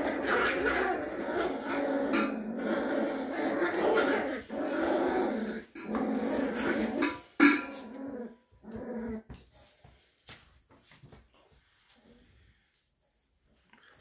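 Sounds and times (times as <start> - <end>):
puppies growling: 0.0 - 9.3.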